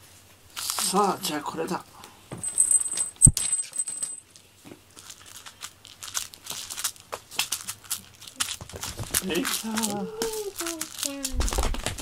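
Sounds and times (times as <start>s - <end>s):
thin high ringing: 2.4s - 4.3s.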